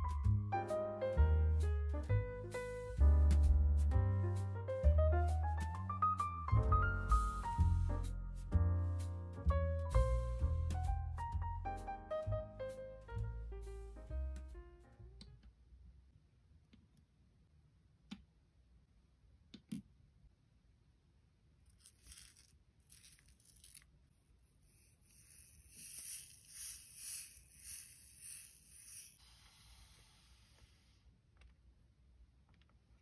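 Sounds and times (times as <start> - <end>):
beads rattling in plastic: 21.7 - 24.0, 24.6 - 29.2.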